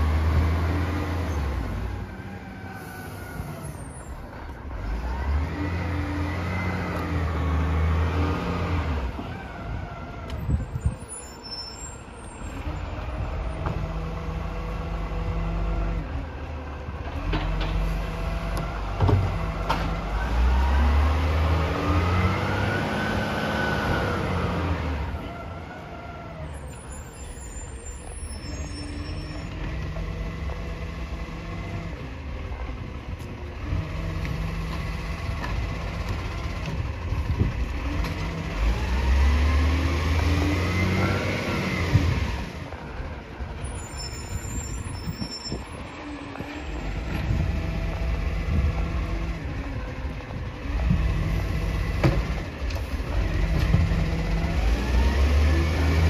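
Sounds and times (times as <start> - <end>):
garbage truck engine revving: 33.6 - 43.1, 46.8 - 56.0.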